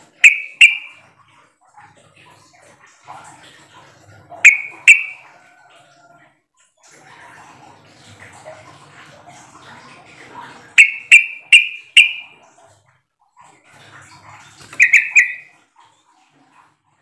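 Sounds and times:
bird calling sharp notes: 0.0 - 1.0, 4.4 - 5.2, 10.8 - 12.3, 14.7 - 15.5.

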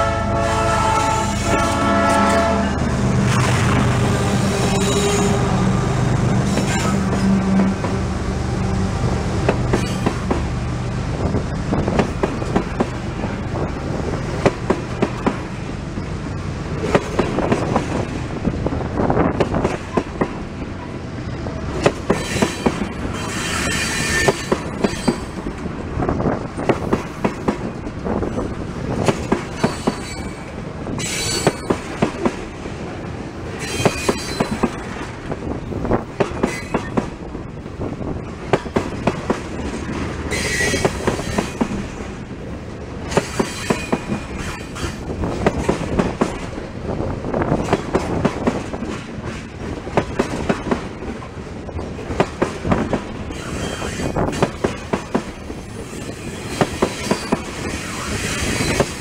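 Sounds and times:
train rumble: 0.0 - 59.0
high wheel squeal: 4.4 - 5.5, 22.2 - 25.4, 29.6 - 31.7, 40.3 - 41.6, 53.3 - 54.2, 55.7 - 59.0
train wheels clacking over rail joints: 9.4 - 10.5, 11.3 - 15.6, 21.7 - 25.7, 26.3 - 32.6, 33.5 - 37.2, 38.2 - 42.2, 43.0 - 46.7, 47.4 - 59.0.

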